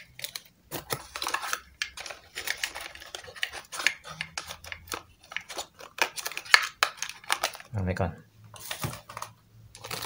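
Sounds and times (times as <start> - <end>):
cardboard box rustling: 8.6 - 10.0.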